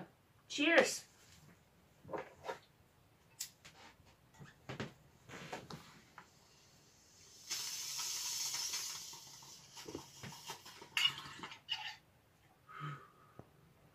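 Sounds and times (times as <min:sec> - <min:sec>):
hissing draw through water: 0:06.3 - 0:11.6.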